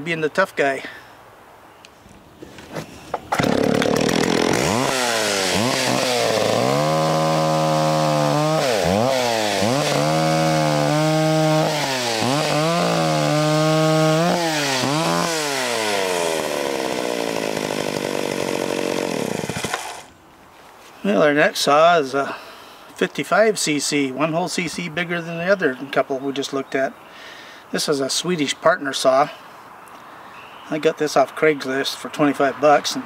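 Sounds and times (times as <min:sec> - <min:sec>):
chainsaw cutting log: 0:03.2 - 0:20.1.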